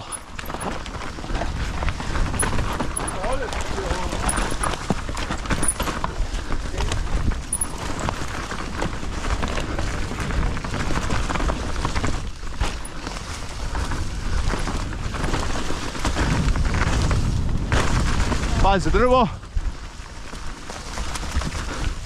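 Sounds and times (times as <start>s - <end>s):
bike clicking and rattling: 0.0s - 22.0s
tyre and wind rushing: 0.0s - 22.0s.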